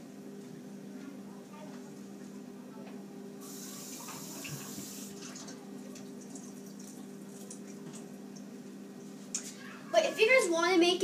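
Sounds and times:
water running from a tap: 3.4s - 8.5s.

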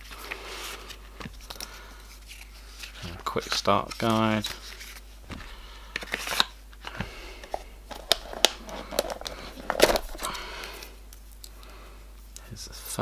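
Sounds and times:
paper rustling: 0.0s - 6.5s, 7.5s - 10.4s.

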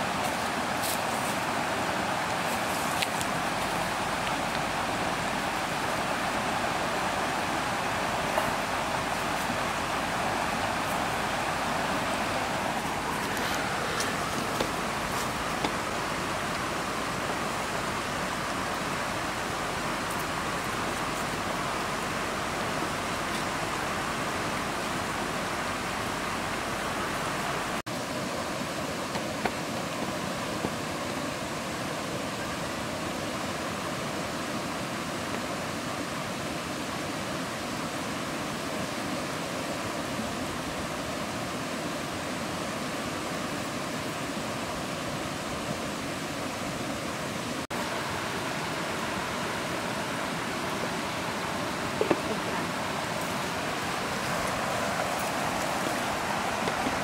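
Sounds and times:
steady rushing hiss: 0.0s - 57.0s.

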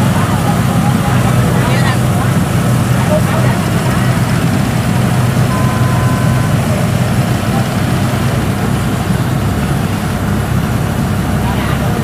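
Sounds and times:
combine harvester diesel engine: 0.0s - 12.0s
brief high tone: 5.5s - 7.0s.

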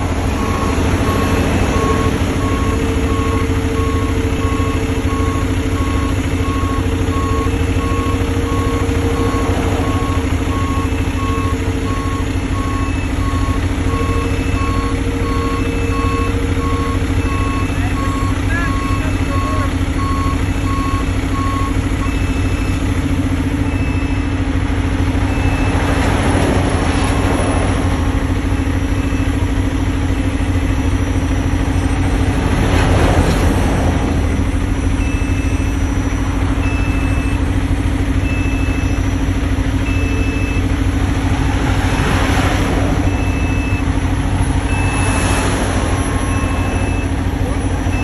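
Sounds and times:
backup alarm beeping: 0.0s - 22.9s, 34.0s - 40.9s, 41.9s - 48.0s
diesel engines droning: 0.0s - 48.0s.

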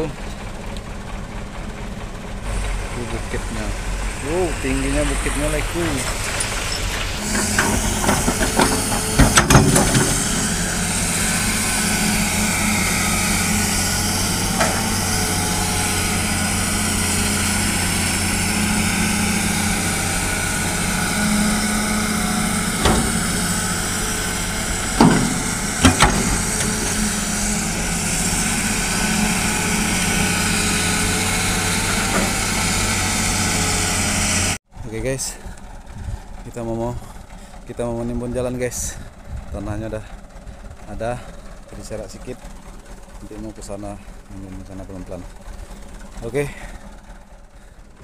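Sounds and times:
excavator diesel engine running: 0.0s - 48.0s
sharp knocks: 22.8s - 24.0s, 24.8s - 27.2s
soil and rocks thudding into truck: 25.0s - 27.1s.

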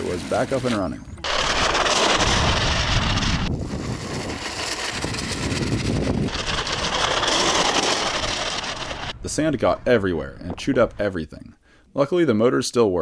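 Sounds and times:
rc vehicle motors and tracks rushing: 1.2s - 9.2s.

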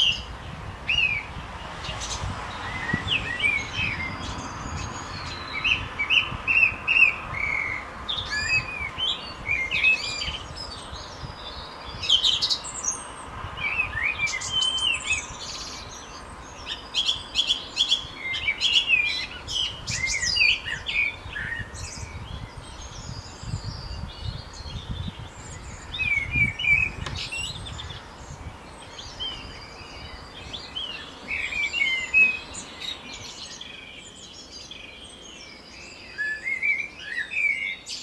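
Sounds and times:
songbirds chirping and singing: 0.0s - 38.0s.

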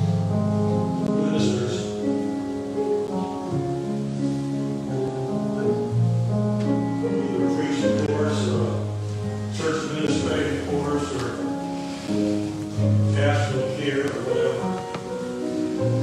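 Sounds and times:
band playing acoustic guitars: 5.4s - 16.0s.

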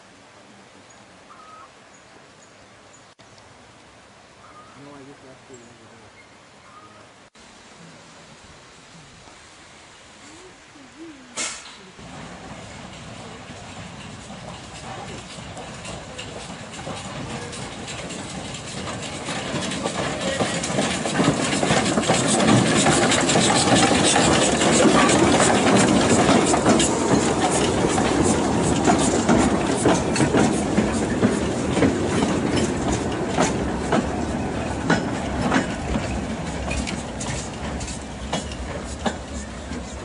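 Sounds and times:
steam locomotive passing: 7.4s - 40.0s
wheels clicking over rail joints: 11.4s - 40.0s.

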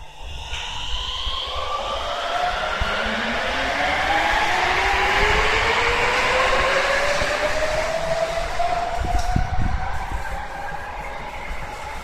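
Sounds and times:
train rumble: 0.0s - 12.0s.

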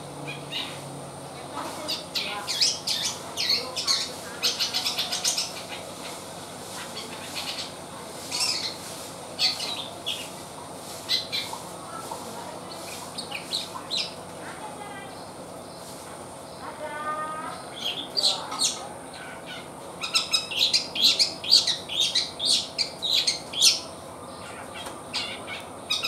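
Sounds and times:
bird calling in scratchy bursts: 1.6s - 14.2s.

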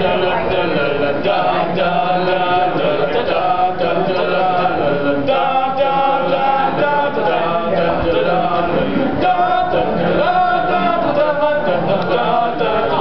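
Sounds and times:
boys singing a cappella: 0.0s - 13.0s.

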